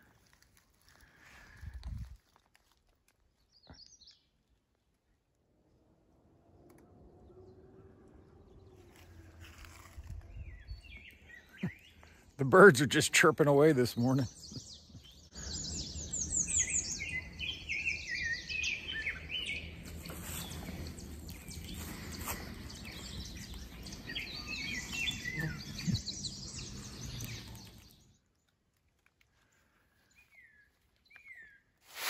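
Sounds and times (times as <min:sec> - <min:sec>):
songbirds singing: 0:03.3 - 0:05.2, 0:05.8 - 0:28.7, 0:29.4 - 0:31.8
low steady background rumble: 0:05.0 - 0:11.0.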